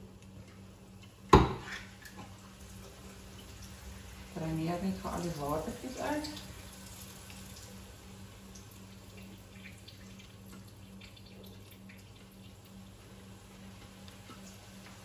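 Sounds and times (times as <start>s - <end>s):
liquid trickling into metal sink: 8.5s - 12.8s
faint drips: 8.5s - 15.0s.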